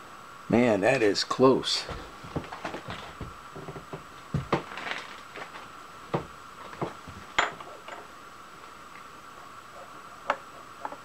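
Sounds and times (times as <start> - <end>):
steady hum: 0.0 - 11.0
metal clinks and knocks: 6.8 - 8.1.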